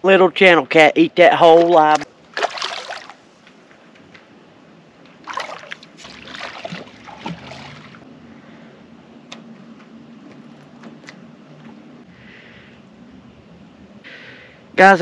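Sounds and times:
water lapping: 1.3 - 3.3, 5.2 - 8.1
water splashing and sloshing: 1.3 - 4.1, 5.0 - 8.1.

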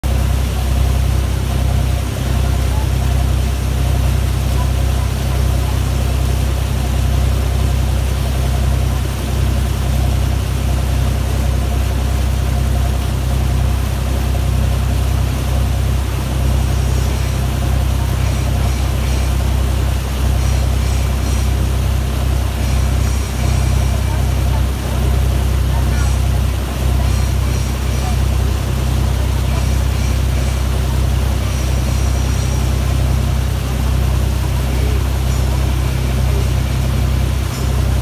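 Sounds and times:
motorboat engine drone: 0.0 - 38.0
water rushing in wake: 0.0 - 38.0.

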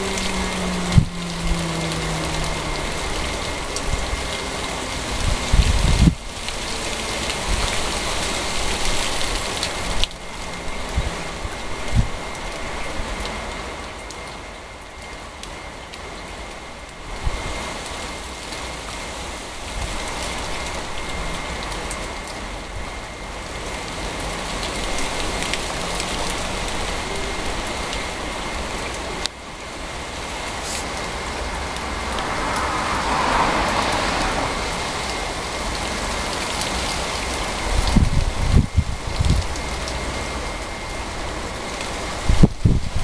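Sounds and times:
low rumble: 0.0 - 6.5
rain hiss: 0.0 - 43.0.

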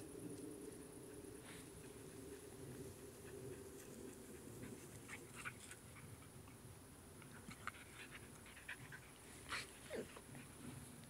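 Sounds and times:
dogs panting: 0.9 - 10.8.

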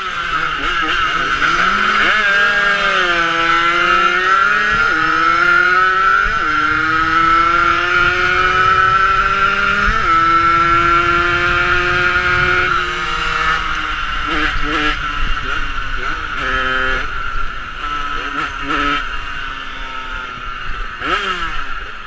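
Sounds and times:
two-stroke motorcycle engine revving: 0.0 - 22.0
wind rush: 4.5 - 15.8.

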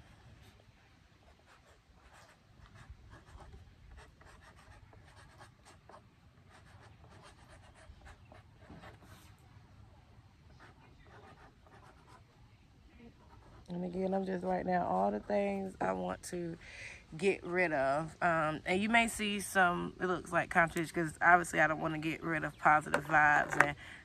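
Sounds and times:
marker writing on plastic: 1.2 - 9.4, 10.5 - 12.4, 13.0 - 13.7, 22.8 - 23.8.

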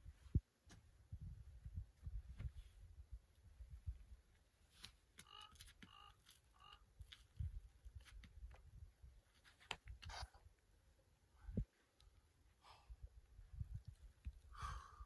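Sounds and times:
wind rumble on microphone: 0.0 - 4.2, 11.4 - 11.7, 13.2 - 14.8.

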